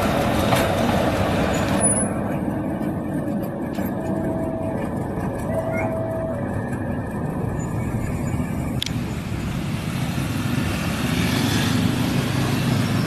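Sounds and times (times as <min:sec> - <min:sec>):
diesel locomotive engine rumbling: 0:00.0 - 0:13.0
motorcycle engines passing: 0:03.8 - 0:13.0.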